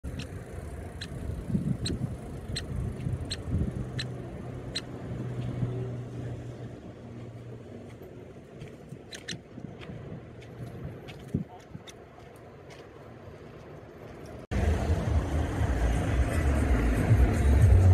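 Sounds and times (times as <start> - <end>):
engine-like hum: 0.0 - 17.9
woodpecker nestling calling: 0.1 - 4.9
low rumble: 14.5 - 17.9.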